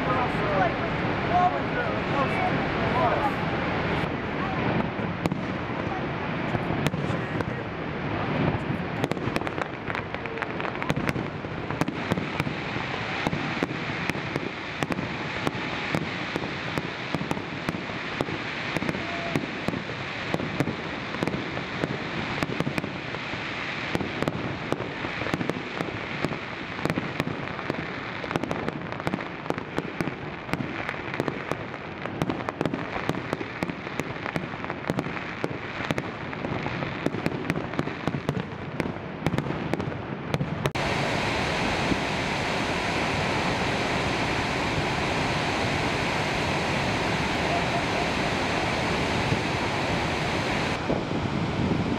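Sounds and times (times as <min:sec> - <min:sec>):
steady rushing noise: 0:00.0 - 0:18.2, 0:40.7 - 0:51.9
fireworks bangs and crackles: 0:00.0 - 0:51.9.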